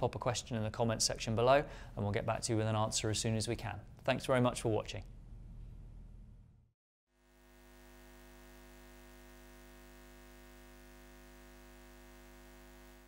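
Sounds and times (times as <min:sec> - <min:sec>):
faint steady hum: 0:05.0 - 0:13.0.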